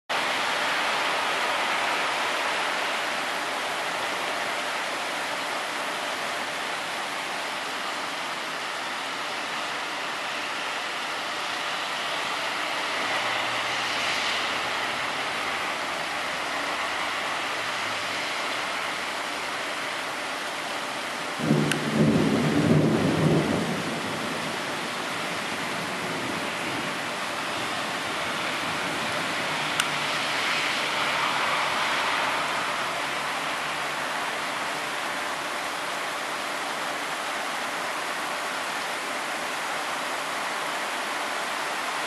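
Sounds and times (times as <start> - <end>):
heavy rain falling: 0.1 - 42.0
low roll of thunder: 21.4 - 27.0.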